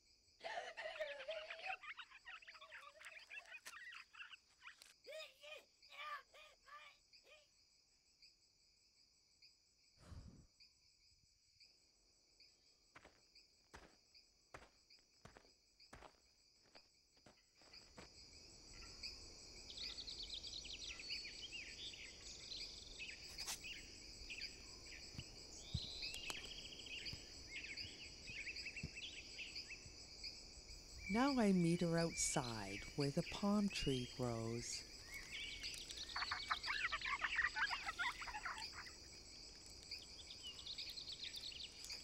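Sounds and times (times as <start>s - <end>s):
insects chirring: 0.0s - 42.0s
birds chirping and twittering: 18.6s - 42.0s.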